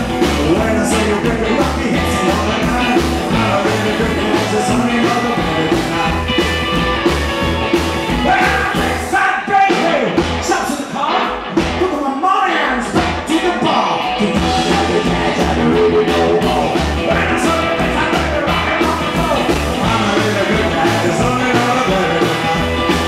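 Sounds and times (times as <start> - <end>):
slapped upright bass: 0.0 - 9.1, 14.2 - 23.0
electric guitar: 0.0 - 23.0.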